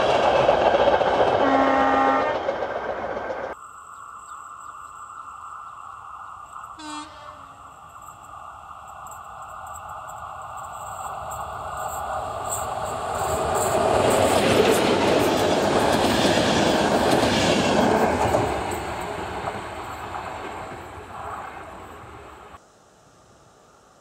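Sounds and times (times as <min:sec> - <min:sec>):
train wheels clattering on rails: 0:00.0 - 0:03.6, 0:08.9 - 0:22.2.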